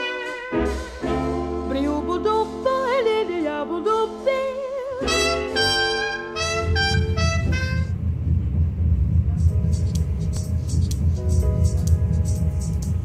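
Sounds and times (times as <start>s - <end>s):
swing jazz music with brass: 0.0s - 8.0s
low rumble: 6.4s - 13.0s.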